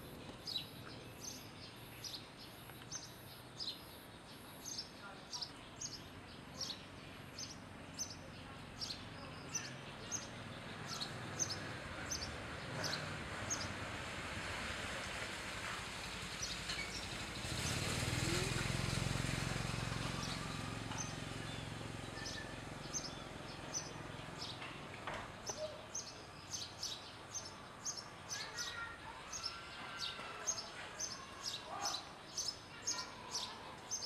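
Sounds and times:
small birds chirping: 0.0 - 14.1, 16.0 - 34.0
vehicle engine passing: 6.6 - 25.5.

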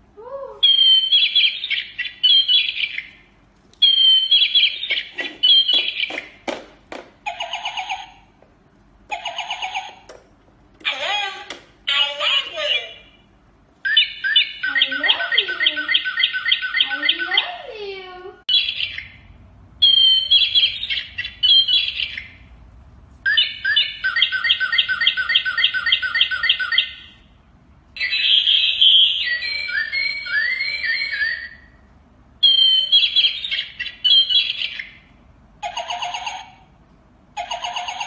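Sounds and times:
toy parrot chirps and whistles: 0.6 - 6.4, 7.3 - 8.2, 13.8 - 17.6, 18.5 - 19.2, 19.8 - 22.4, 23.3 - 27.2, 28.0 - 31.8, 32.4 - 36.6, 37.4 - 38.0.

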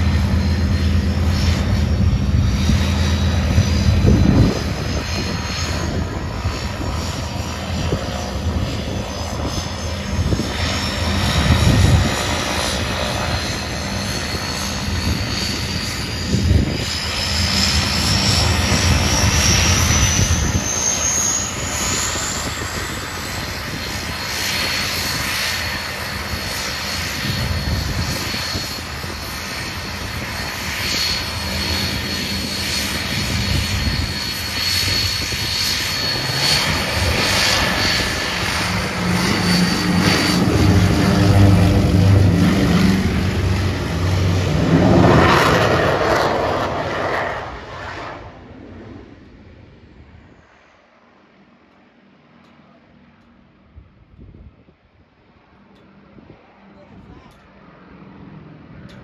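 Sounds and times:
aircraft engines at high power: 0.0 - 59.0
high jet whine: 0.0 - 59.0.

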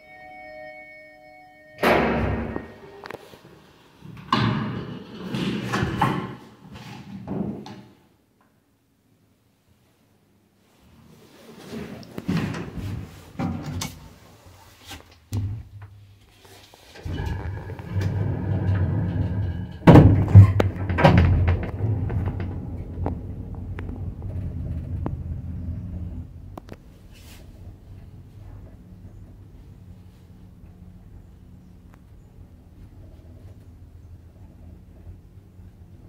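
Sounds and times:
lift doors closing: 1.7 - 3.2, 17.0 - 26.2
loud door clunks: 1.8 - 2.8, 17.1 - 22.7.

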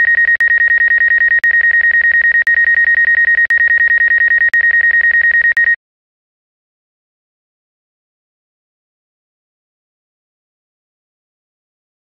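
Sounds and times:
rapid electronic warning beeps: 0.0 - 5.8.

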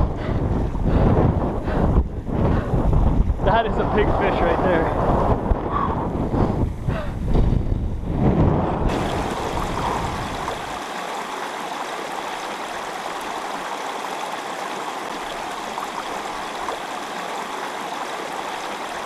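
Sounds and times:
wind buffeting microphone: 0.0 - 14.3
stream running water: 8.9 - 19.0.

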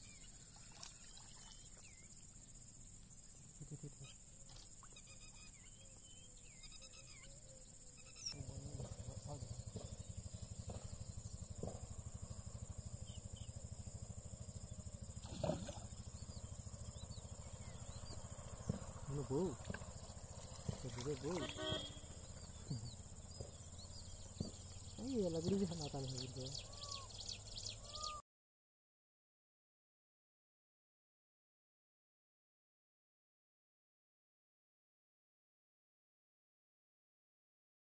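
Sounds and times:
insect chirping: 0.0 - 28.2
insect drone: 0.0 - 28.2
faint calls: 14.2 - 28.2.

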